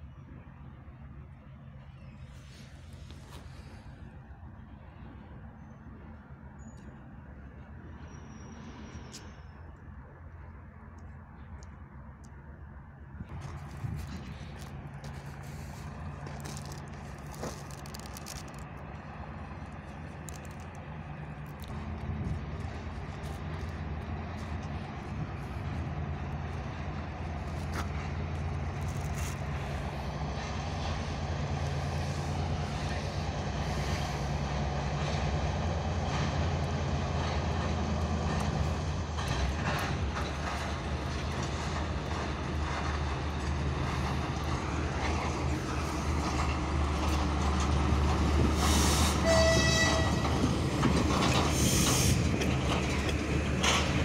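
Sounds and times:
diesel locomotive engine running: 0.0s - 54.0s
wagon wheels clattering on rails: 35.0s - 54.0s.

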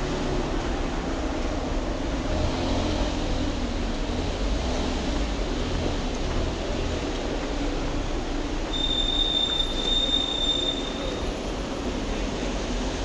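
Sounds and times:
train wheels squealing: 8.7s - 11.6s.

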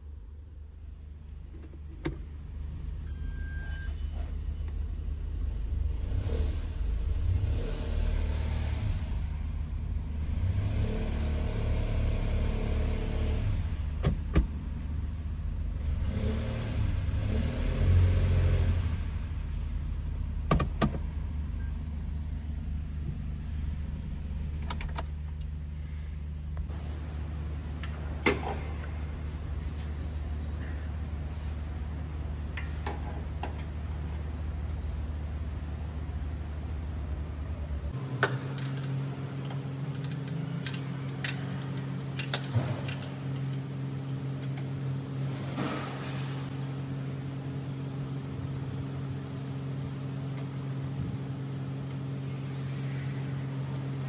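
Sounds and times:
car engine revving: 5.8s - 13.9s, 15.7s - 19.4s.

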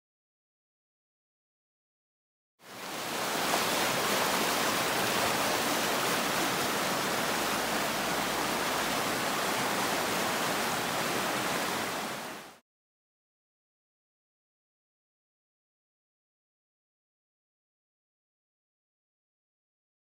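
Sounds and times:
water rushing over rocks: 2.6s - 12.6s.

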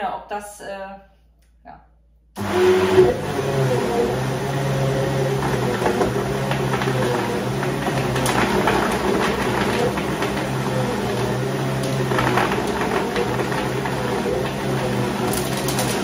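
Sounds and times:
blender running at high speed: 2.4s - 16.0s
frozen pieces clattering in jug: 11.8s - 16.0s.

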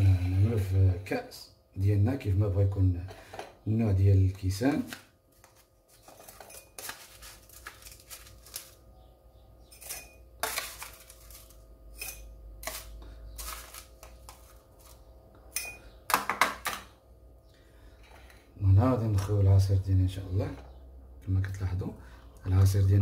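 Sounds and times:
spoon scraping a ceramic dish: 6.0s - 7.3s, 9.6s - 13.8s.

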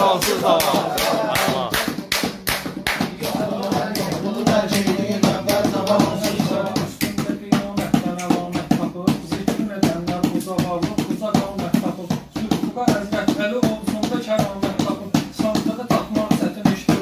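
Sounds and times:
listeners clapping along: 0.0s - 11.5s
man chanting rhymed verse: 0.0s - 17.0s
steady percussive beat: 0.0s - 17.0s.

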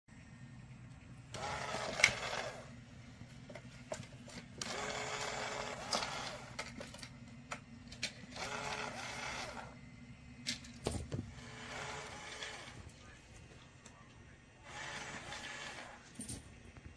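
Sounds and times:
steady low hum: 0.1s - 16.9s
small electric motor whirring: 1.4s - 2.7s, 4.6s - 6.6s, 8.3s - 9.8s, 11.3s - 12.8s, 14.6s - 16.0s.

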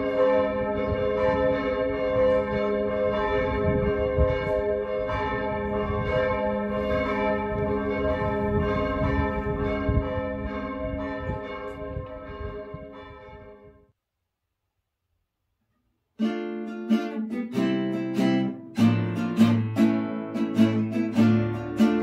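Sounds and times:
church bells ringing: 0.0s - 13.8s, 19.5s - 22.0s.

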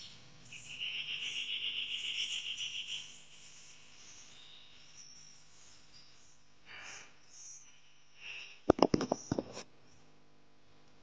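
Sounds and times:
pulsing insect trill: 0.0s - 9.4s
faint high insect chirps: 0.0s - 10.2s.

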